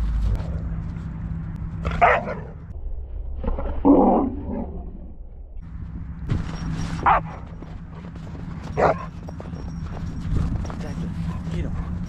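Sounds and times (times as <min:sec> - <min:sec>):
dog barking: 0:02.0 - 0:02.5, 0:07.0 - 0:07.5, 0:08.7 - 0:09.2, 0:11.2 - 0:12.0.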